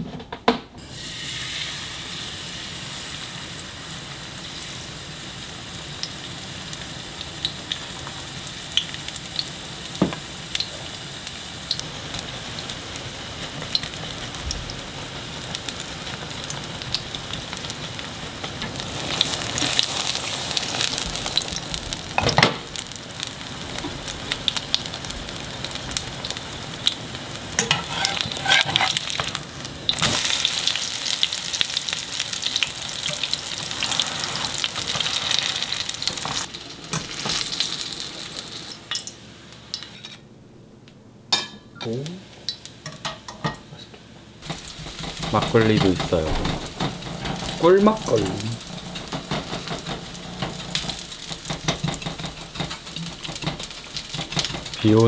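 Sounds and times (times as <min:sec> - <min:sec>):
pancake sizzling in oil: 0:00.8 - 0:40.2, 0:44.4 - 0:55.0.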